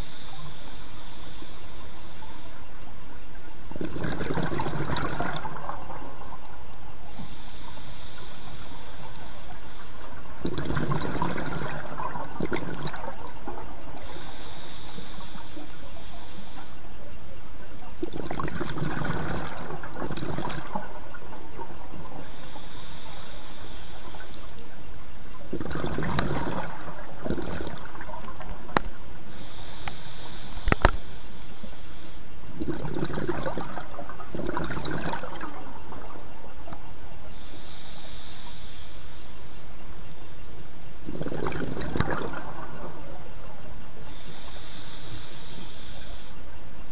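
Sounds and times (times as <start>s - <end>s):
exhaled bubbles rushing: 3.7s - 7.3s, 8.5s - 14.4s, 18.0s - 22.5s, 25.4s - 29.2s, 32.5s - 36.9s, 41.0s - 43.8s
regulator inhale hiss: 7.0s - 9.8s, 14.0s - 16.6s, 22.2s - 24.2s, 29.2s - 32.2s, 37.3s - 39.3s, 44.0s - 46.4s.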